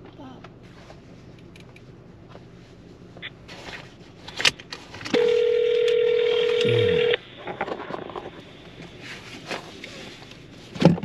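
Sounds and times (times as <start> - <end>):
low steady hum: 0.0 - 11.0
phone outgoing call ringing tone: 5.1 - 7.2.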